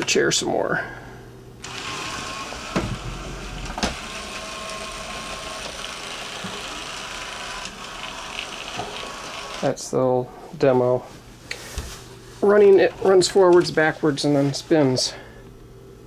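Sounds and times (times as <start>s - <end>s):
robot motors whirring: 1.6s - 9.6s.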